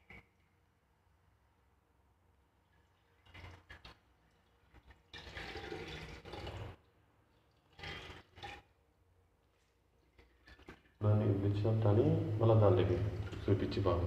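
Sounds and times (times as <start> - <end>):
hands sloshing liquid in a pot: 2.7 - 8.8, 9.5 - 11.0, 12.9 - 14.0
liquid splashing: 3.0 - 6.8, 10.0 - 11.0, 12.7 - 14.0.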